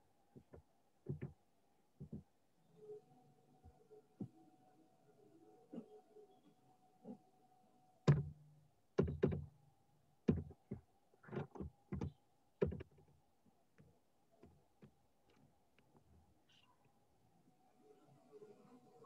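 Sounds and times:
faint steady hum: 0:00.0 - 0:19.0
irregular knocks and thuds: 0:00.3 - 0:01.4, 0:02.0 - 0:02.3, 0:08.1 - 0:08.4, 0:09.0 - 0:09.5, 0:10.2 - 0:13.1.

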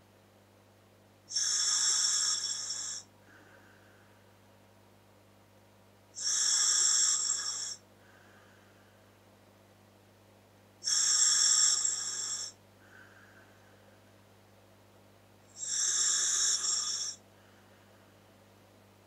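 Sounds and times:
hissing breaths through regulator: 0:01.3 - 0:03.1, 0:06.2 - 0:07.8, 0:10.8 - 0:12.6, 0:15.6 - 0:17.2
faint breath sounds: 0:01.3 - 0:04.4, 0:06.2 - 0:09.3, 0:10.8 - 0:14.3, 0:15.5 - 0:18.4.

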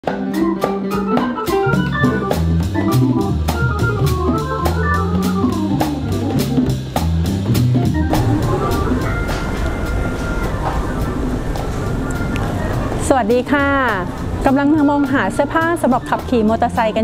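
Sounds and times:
steady drum beat: 0:00.0 - 0:16.8
keyboard melody: 0:00.0 - 0:17.0
stepping bass line: 0:01.5 - 0:09.5.

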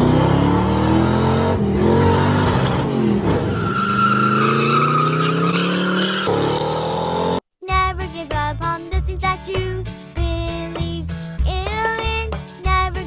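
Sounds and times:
car engines revving: 0:00.0 - 0:07.4
tire squeal: 0:00.9 - 0:07.2.

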